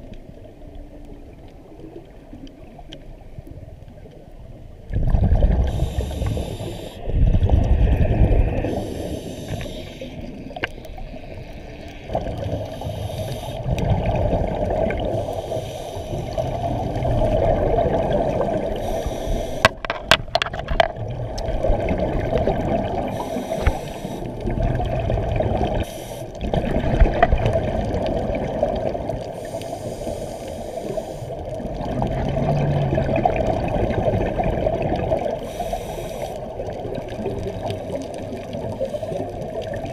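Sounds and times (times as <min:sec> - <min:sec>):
bubbling exhale: 0:04.9 - 0:10.6, 0:12.1 - 0:19.8, 0:21.6 - 0:39.9
regulator hiss on inhale: 0:05.6 - 0:07.2, 0:07.9 - 0:10.4, 0:12.5 - 0:13.7, 0:15.0 - 0:16.5, 0:18.6 - 0:19.8, 0:23.1 - 0:24.4, 0:25.8 - 0:26.4, 0:29.3 - 0:31.5, 0:35.4 - 0:36.8, 0:37.6 - 0:39.7.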